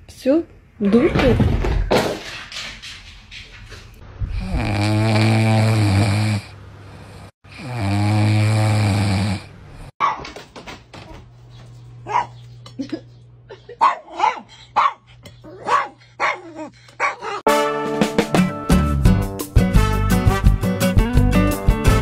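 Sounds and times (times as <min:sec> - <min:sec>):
puppy snoring loudly: 0:04.3 - 0:09.9.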